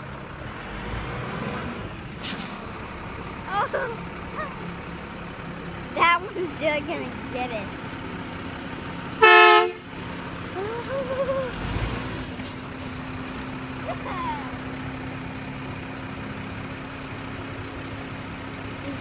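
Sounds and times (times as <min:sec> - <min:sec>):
truck engine running: 0:00.0 - 0:19.0
truck horn: 0:09.2 - 0:09.9.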